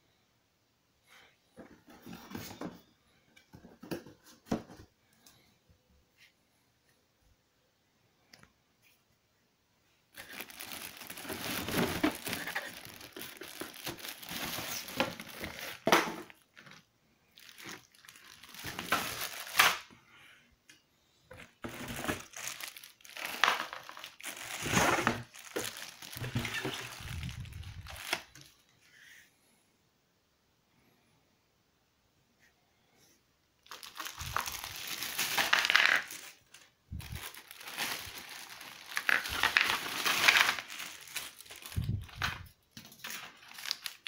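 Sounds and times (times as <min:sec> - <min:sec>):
plastic bags crinkling: 0:10.1 - 0:19.9, 0:21.3 - 0:28.6, 0:33.6 - 0:44.0.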